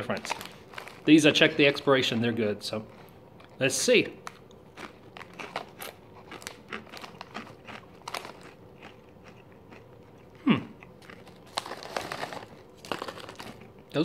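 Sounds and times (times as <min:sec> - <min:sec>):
crunching potato crisps: 0:00.0 - 0:14.0
person humming: 0:10.4 - 0:10.8.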